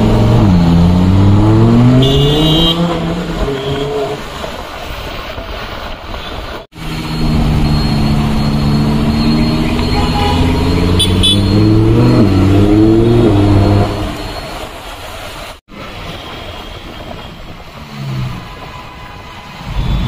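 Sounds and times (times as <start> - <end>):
car engine revving loud: 0.0 - 4.1, 6.8 - 14.2.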